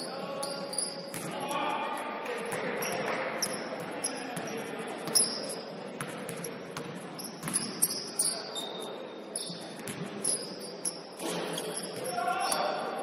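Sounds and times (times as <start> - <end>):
high-pitched squeaks: 0.0 - 1.1, 2.8 - 4.3, 5.1 - 5.7, 7.2 - 12.7
murmur of the hall: 0.0 - 13.0
basketball bouncing on court: 0.9 - 1.4, 2.5 - 8.1, 9.4 - 10.4.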